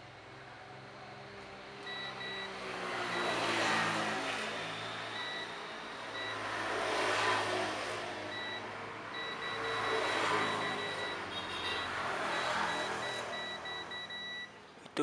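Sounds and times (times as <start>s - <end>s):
multimeter beeps: 1.9s - 2.5s, 3.1s - 3.4s, 5.1s - 6.5s, 8.3s - 14.6s.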